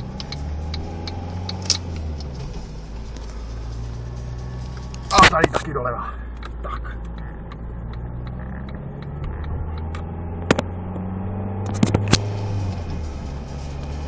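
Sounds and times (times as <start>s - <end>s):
sharp clicks: 0.0s - 2.4s, 6.3s - 12.3s
car engine and road noise: 0.0s - 14.0s.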